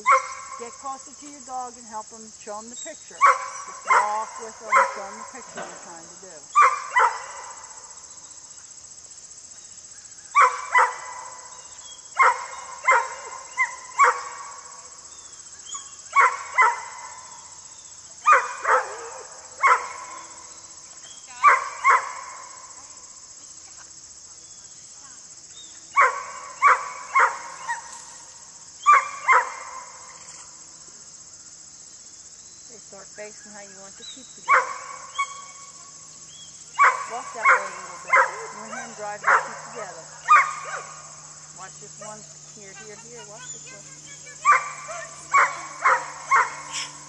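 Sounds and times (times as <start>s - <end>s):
dog barking: 0.0s - 0.6s, 3.2s - 5.5s, 6.6s - 7.7s, 10.4s - 11.5s, 12.2s - 14.6s, 15.8s - 17.3s, 18.2s - 20.4s, 21.4s - 22.6s, 25.9s - 27.9s, 28.8s - 30.2s, 34.4s - 35.8s, 36.8s - 41.2s, 44.4s - 47.0s.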